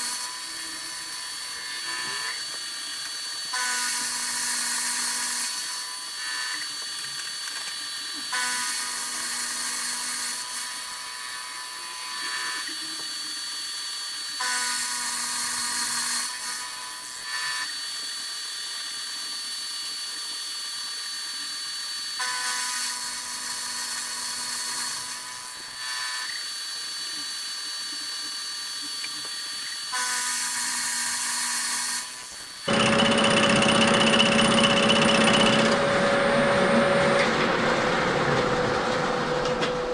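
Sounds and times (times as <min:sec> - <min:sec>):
milling machine motor whine: 0:00.0 - 0:13.7, 0:28.9 - 0:39.9
end mill cutting metal: 0:29.9 - 0:39.9.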